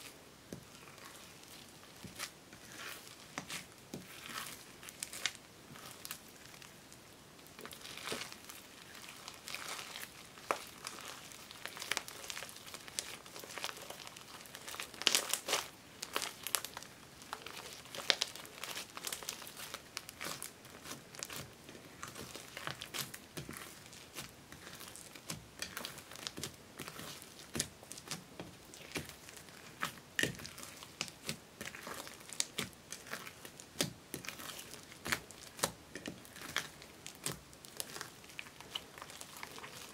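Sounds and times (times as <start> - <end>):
slime crackling and popping: 0.0 - 39.9.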